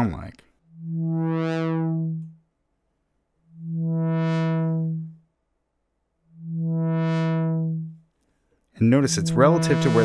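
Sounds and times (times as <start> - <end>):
synthesizer low note filter sweep: 0.0 - 2.5, 3.3 - 5.4, 6.1 - 8.1, 8.8 - 10.0.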